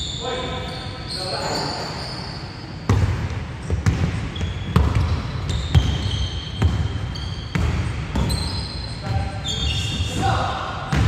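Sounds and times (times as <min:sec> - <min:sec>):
sneaker squeaks: 0:00.0 - 0:11.0
basketball bouncing on hardwood: 0:02.9 - 0:06.9.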